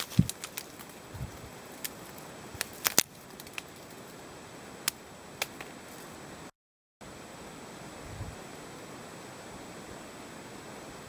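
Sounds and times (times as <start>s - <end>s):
ice cracking on twigs: 0.0s - 4.2s
steady hiss: 0.0s - 11.0s.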